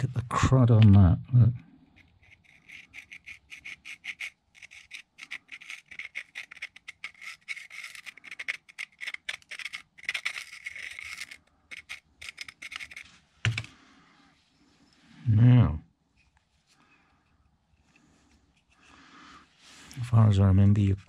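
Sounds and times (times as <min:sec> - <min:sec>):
screwdriver scraping metal: 0:02.0 - 0:13.7.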